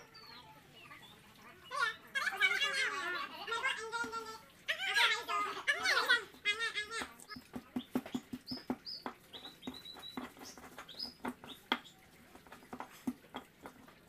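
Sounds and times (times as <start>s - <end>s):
small birds chirping: 0.0s - 14.0s
stone pestle knocking in mortar: 7.0s - 13.9s.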